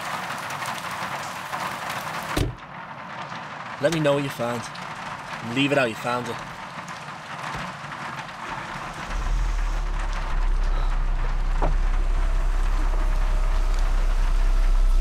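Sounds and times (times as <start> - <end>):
car interior rumble: 6.5 - 15.0.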